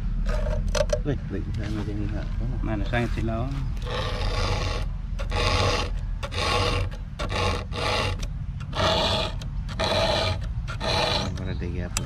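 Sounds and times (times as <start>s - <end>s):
file strokes sharpening chainsaw chain: 3.8s - 11.5s.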